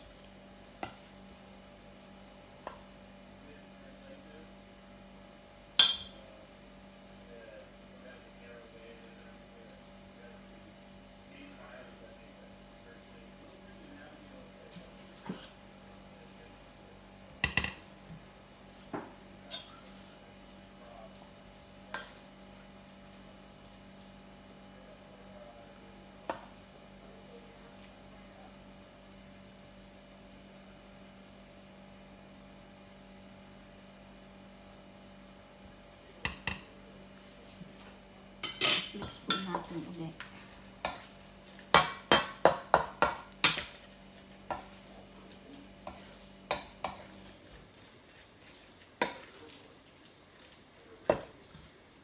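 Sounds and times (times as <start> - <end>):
steady low hum: 0.0 - 52.0
spoon clinking on ceramic dish: 5.8 - 6.2.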